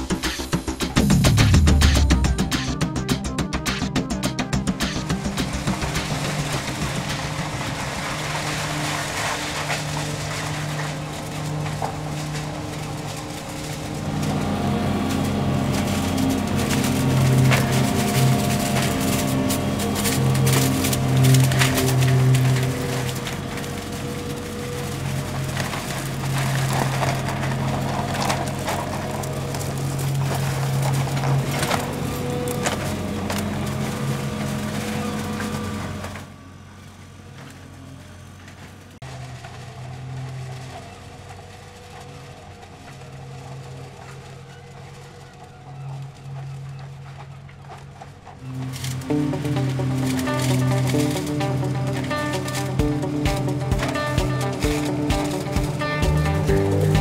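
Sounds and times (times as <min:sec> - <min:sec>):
litter clattering in hose: 0:04.8 - 0:36.2, 0:48.4 - 0:57.0
vacuum cleaner engine drone: 0:04.9 - 0:57.0.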